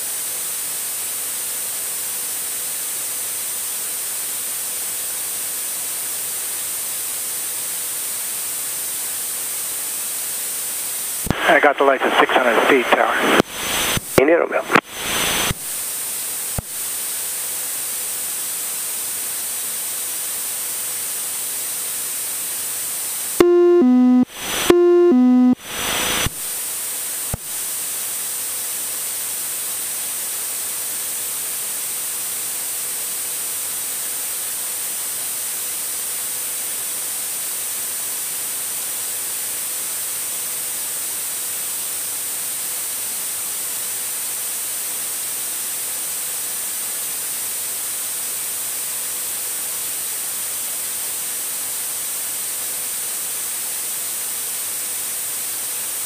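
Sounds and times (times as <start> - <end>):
steady hiss: 11.3 - 15.6
two-tone falling alert: 23.4 - 25.6.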